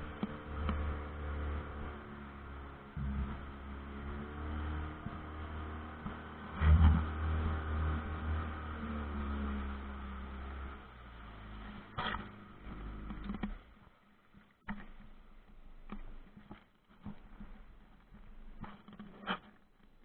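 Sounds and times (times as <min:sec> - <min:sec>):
boat motor running: 0:00.0 - 0:14.0.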